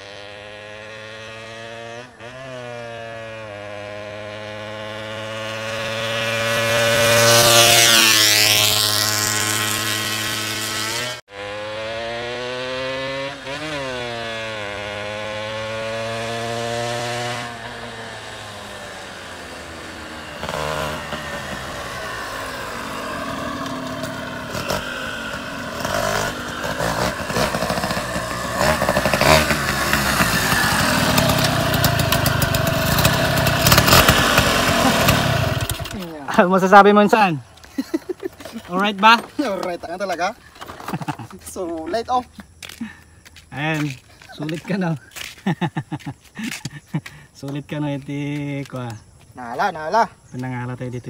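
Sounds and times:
two-stroke motorcycle passing: 0.0 - 51.0.

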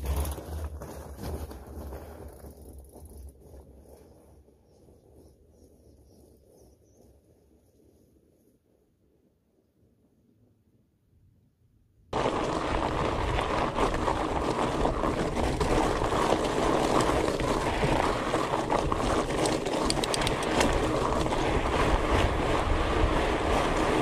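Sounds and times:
bike rolling over gravel: 0.0 - 4.3, 12.2 - 24.0.

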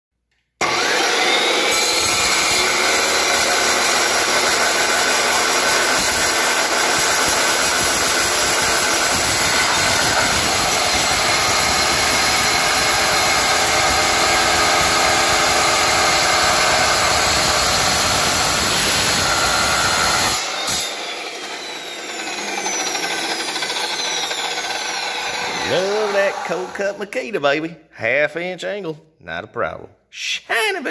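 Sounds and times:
saw blade winding down: 0.6 - 27.1
saw whining cutting steel: 0.6 - 27.1.

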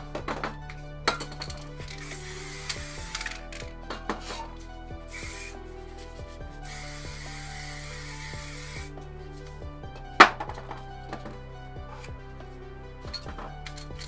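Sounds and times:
background music: 0.0 - 14.0
spray paint can hissing: 1.8 - 4.5, 5.1 - 6.0, 6.6 - 8.9.

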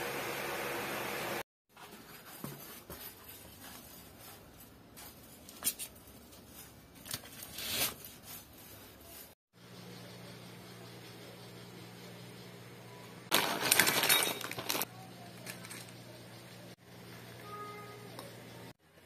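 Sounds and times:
paper envelope scraping on tiles: 7.1 - 9.4.

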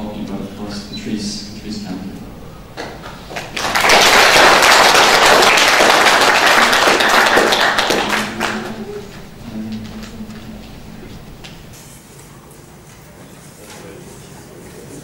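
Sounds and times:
audience applauding: 2.8 - 11.8.

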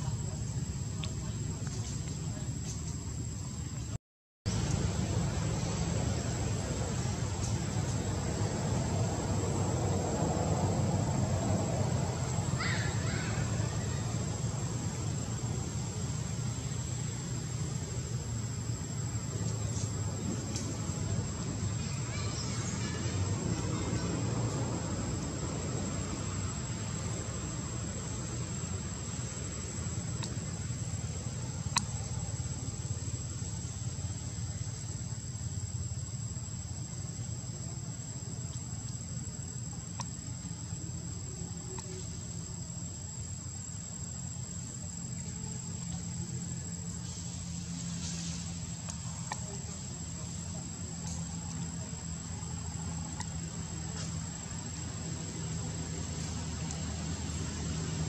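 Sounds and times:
high hiss: 0.0 - 58.0
faint clicks: 30.1 - 30.4.

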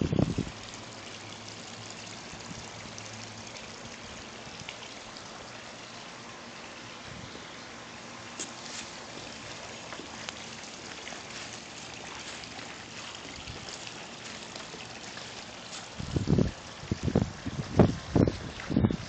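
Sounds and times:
wind buffeting microphone: 0.0 - 0.6, 15.9 - 19.0
water dripping: 0.0 - 6.9, 8.4 - 19.0
trickling water: 0.0 - 19.0.

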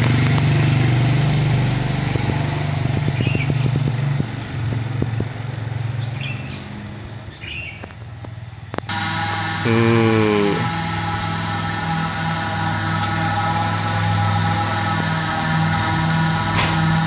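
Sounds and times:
motor scooter engine running: 0.0 - 7.1.

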